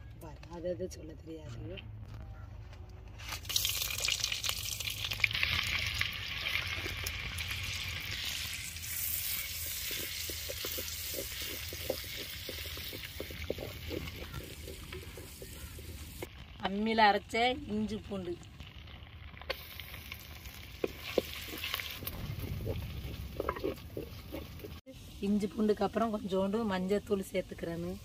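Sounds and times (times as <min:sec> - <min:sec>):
oil sizzling in a pan: 0:03.4 - 0:17.2, 0:18.4 - 0:23.9.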